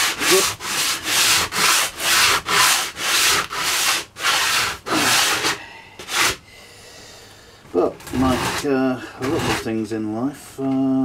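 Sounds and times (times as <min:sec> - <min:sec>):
sandpaper rubbing on wood: 0:00.0 - 0:06.4, 0:08.1 - 0:09.8.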